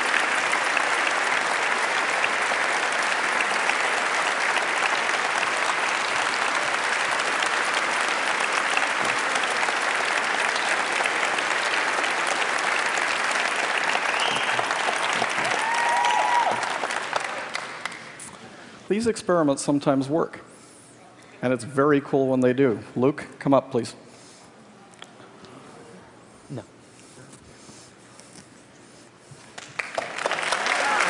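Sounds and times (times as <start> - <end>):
audience applauding: 0.0 - 18.2, 29.5 - 31.0
person whooping: 15.4 - 16.8.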